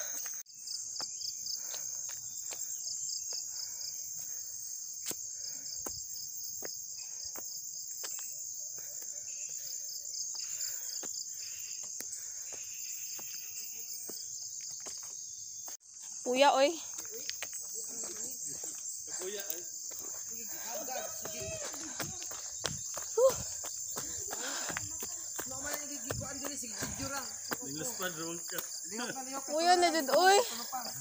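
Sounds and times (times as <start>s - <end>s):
footsteps on stony dirt path: 0.0s - 9.6s, 10.4s - 31.0s
insects buzzing and trilling: 0.0s - 31.0s.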